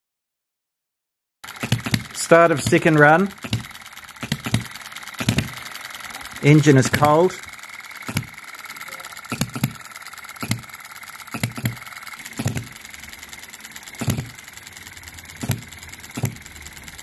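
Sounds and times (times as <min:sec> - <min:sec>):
faint fast ticking: 0:01.4 - 0:17.0
model engine firing pops: 0:01.5 - 0:02.8, 0:03.4 - 0:05.8, 0:07.9 - 0:12.9, 0:13.8 - 0:14.5, 0:15.4 - 0:16.5.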